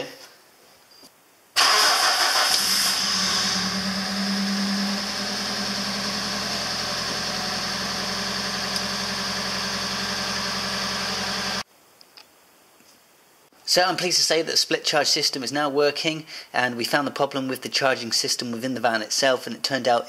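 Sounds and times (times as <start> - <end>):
van engine idling: 1.7 - 11.6.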